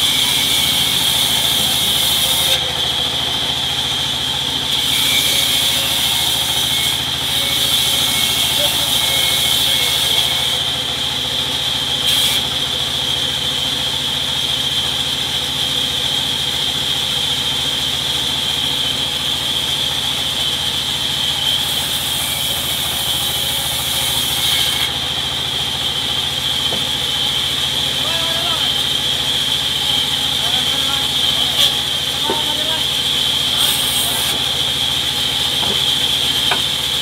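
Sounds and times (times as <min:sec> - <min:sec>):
saw blade cutting wood: 0:00.0 - 0:10.8, 0:11.4 - 0:12.7, 0:20.0 - 0:37.0
band saw blade whine: 0:00.0 - 0:37.0.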